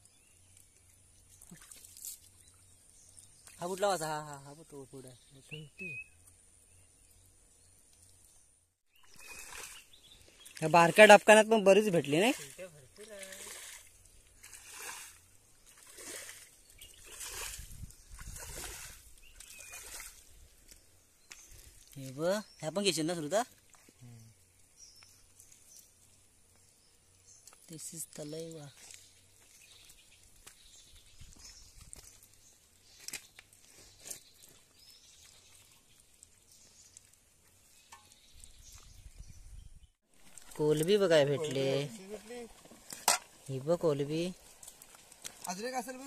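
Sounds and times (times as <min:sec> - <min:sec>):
faint wet ticks and pats of fish: 0:00.0 - 0:04.1, 0:06.1 - 0:08.5, 0:09.1 - 0:22.2, 0:22.9 - 0:39.2, 0:40.2 - 0:46.0
hands splashing in puddle: 0:12.3 - 0:22.0.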